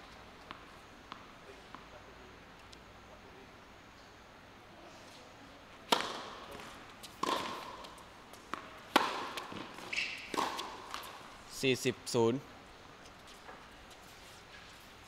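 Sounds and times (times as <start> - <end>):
tennis ball hit by racket: 5.9 - 11.2.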